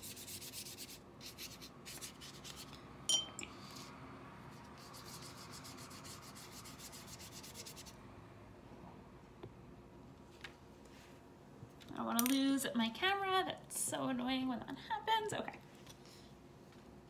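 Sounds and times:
paintbrush scrubbing on paper: 0.0s - 2.7s, 4.6s - 7.9s.

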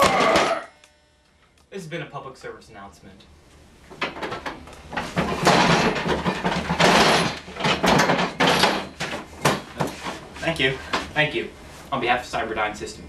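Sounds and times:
table and chairs scraping: 4.0s - 11.2s.

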